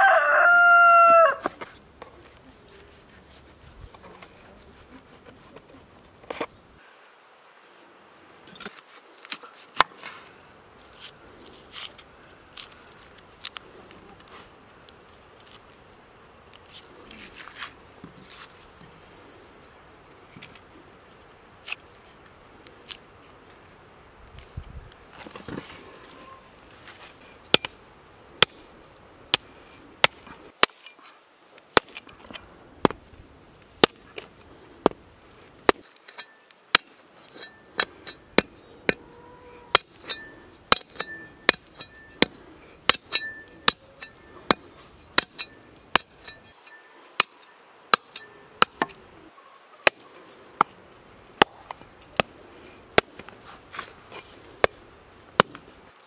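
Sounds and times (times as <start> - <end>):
hatchet chopping through bones: 27.5 - 27.8, 33.8 - 34.2, 35.6 - 39.0, 39.7 - 46.6, 47.2 - 49.0, 51.4 - 53.3, 55.4 - 55.7.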